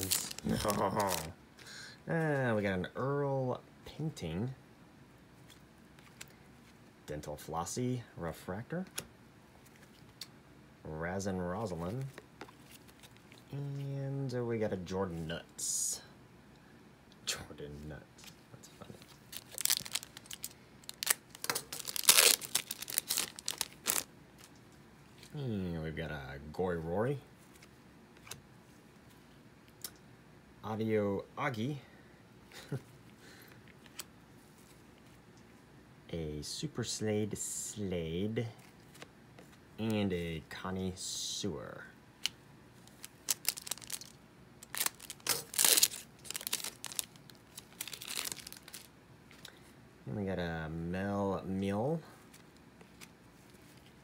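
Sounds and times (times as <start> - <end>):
foil wrapper tearing and crinkling: 0.0 - 1.3, 19.2 - 24.1, 42.9 - 48.9.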